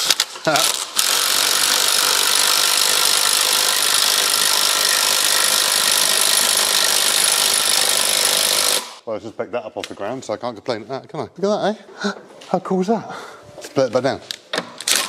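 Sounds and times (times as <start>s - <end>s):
cordless drill running under load: 0.6s - 9.0s.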